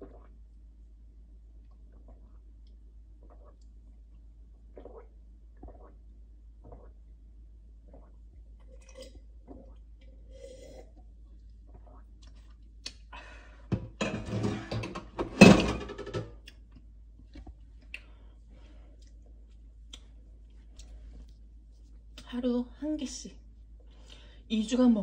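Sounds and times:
person gulping a drink: 0.0 - 0.4, 1.6 - 7.0, 7.8 - 13.2.

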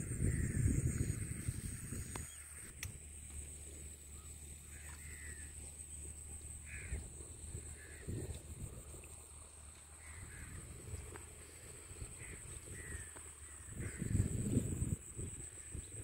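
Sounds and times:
wind rumble on microphone: 0.0 - 3.1, 6.7 - 16.0
crow cawing: 0.3 - 0.6, 4.6 - 5.5, 6.6 - 7.0, 7.7 - 8.2, 10.0 - 10.7, 12.2 - 14.2.

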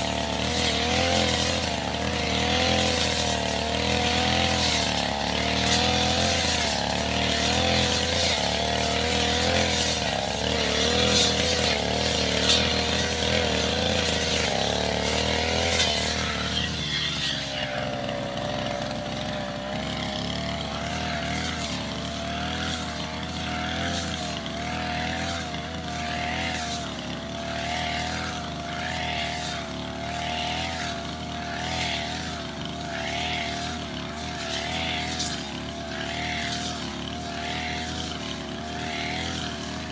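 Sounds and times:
brush cutter engine running: 0.0 - 39.9.

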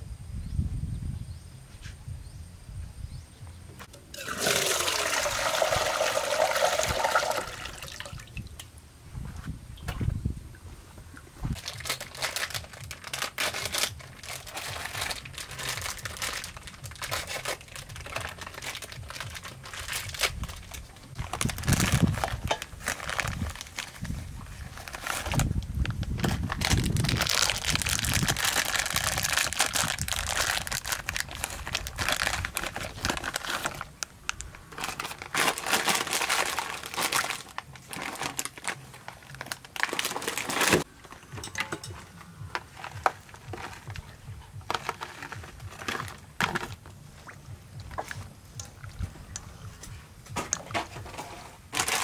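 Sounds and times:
plastic packets crinkling and tearing: 11.5 - 41.2, 42.5 - 46.8, 51.7 - 52.0.

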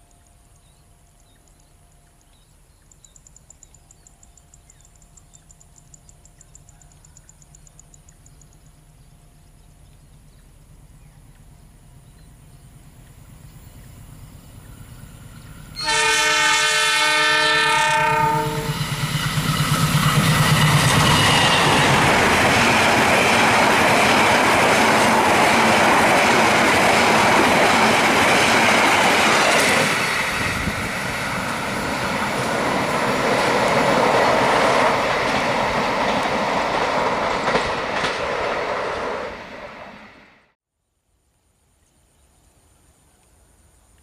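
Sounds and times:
locomotive horn blast: 15.8 - 18.8
locomotive engine: 17.5 - 40.2
train wheels clacking on rails: 18.4 - 40.0.

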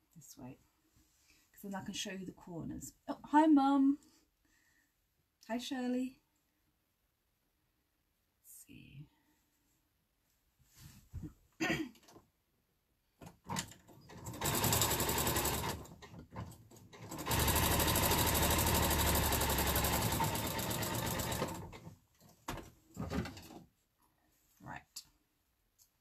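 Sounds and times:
sewing machine stitching: 13.4 - 21.9.

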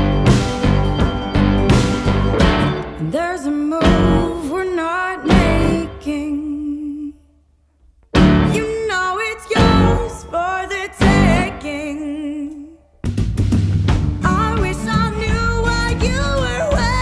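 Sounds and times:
pop song with singer: 2.9 - 7.4, 8.4 - 13.0, 14.2 - 17.0.

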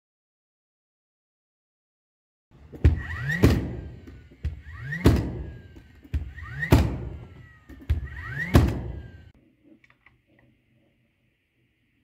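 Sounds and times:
nail gun firing: 2.6 - 9.3
nail gun motor whir: 2.6 - 9.4.

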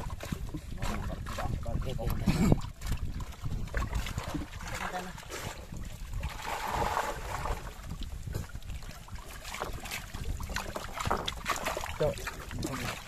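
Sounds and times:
fish thrashing in water: 0.0 - 13.0.

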